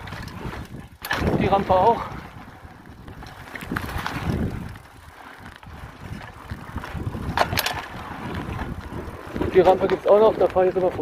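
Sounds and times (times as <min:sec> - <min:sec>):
bike rattling: 0:00.0 - 0:11.0
bike tyres rumbling on dirt: 0:00.0 - 0:11.0
wind on microphone: 0:00.0 - 0:11.0.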